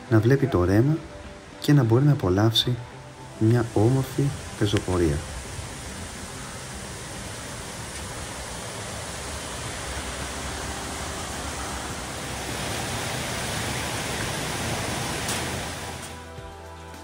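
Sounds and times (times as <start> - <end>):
stream rushing over rocks: 3.0 - 16.3.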